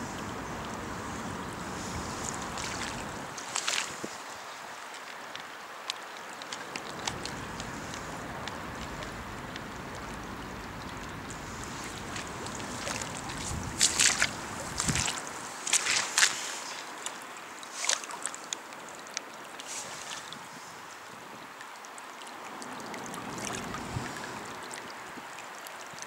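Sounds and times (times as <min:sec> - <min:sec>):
wind rumble on microphone: 0:00.0 - 0:04.4, 0:06.8 - 0:16.4, 0:22.9 - 0:26.0
floodwater rushing: 0:00.0 - 0:26.0
water splashing: 0:00.0 - 0:26.0.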